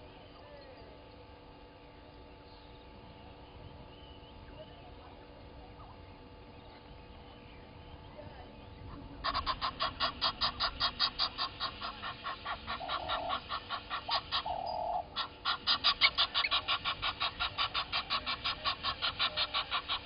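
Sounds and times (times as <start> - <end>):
lower bird call: 5.8 - 20.0
bird clucking calls: 8.9 - 20.0.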